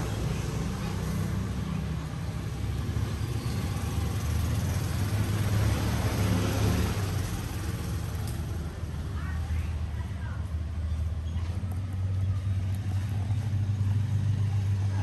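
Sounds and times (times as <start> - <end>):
low engine hum: 0.0 - 15.0.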